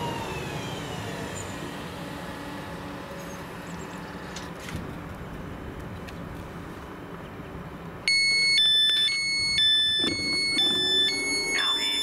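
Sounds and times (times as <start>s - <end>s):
steady background hum: 1.8s - 12.0s
two-tone door warning beep: 8.1s - 12.0s.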